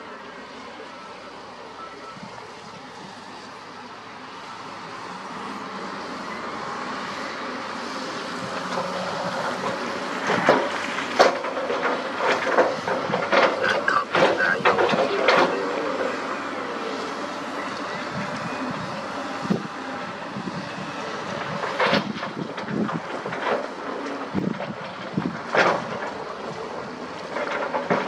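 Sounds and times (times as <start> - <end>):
truck engine: 0.0 - 28.0.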